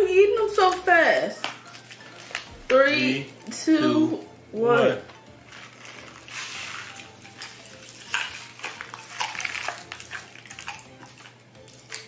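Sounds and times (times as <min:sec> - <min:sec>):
popping candy crackling: 0:00.5 - 0:12.0
candy rustling pour: 0:05.4 - 0:11.0.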